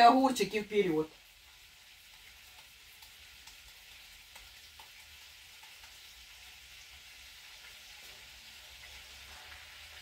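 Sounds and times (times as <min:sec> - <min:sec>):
cutlets sizzling in oil: 0:00.0 - 0:10.0
small oil pops: 0:02.1 - 0:06.0.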